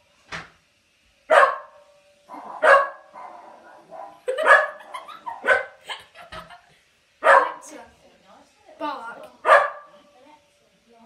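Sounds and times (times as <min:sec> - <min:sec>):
dog barking: 0:01.3 - 0:05.8, 0:07.2 - 0:07.6, 0:09.4 - 0:10.0.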